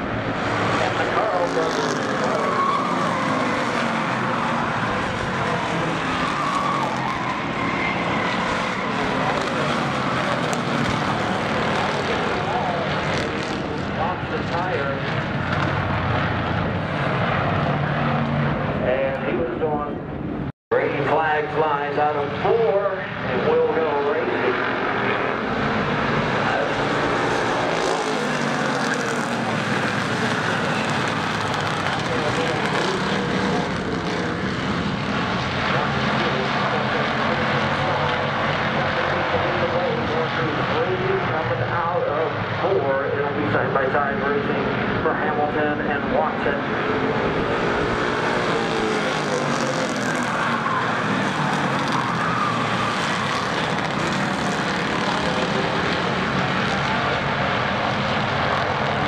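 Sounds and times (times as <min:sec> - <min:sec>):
race car engines droning: 0:00.0 - 0:59.0.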